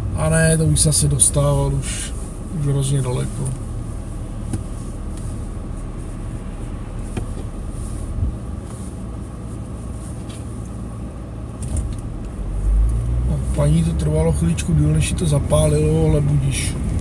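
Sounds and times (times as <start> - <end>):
car rumble from inside cabin: 0.0 - 17.0.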